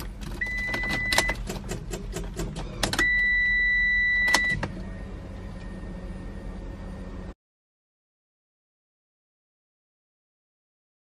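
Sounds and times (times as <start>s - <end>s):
steady low hum: 0.0s - 7.4s
high beeps: 3.0s - 5.9s.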